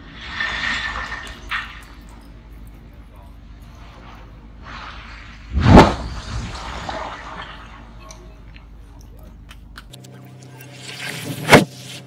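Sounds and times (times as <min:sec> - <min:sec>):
crackling rumble of falling debris: 0:00.4 - 0:04.3, 0:04.9 - 0:09.8
sharp bang: 0:05.5 - 0:07.4.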